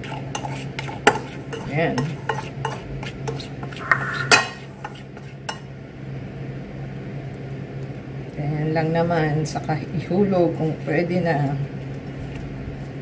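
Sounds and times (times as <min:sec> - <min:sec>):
spoon clinking in ceramic bowl: 0:03.8 - 0:04.6.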